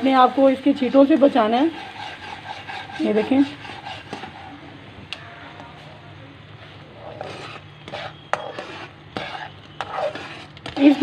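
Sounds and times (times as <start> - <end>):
metal turner scraping pan: 1.1 - 4.6, 6.9 - 11.0.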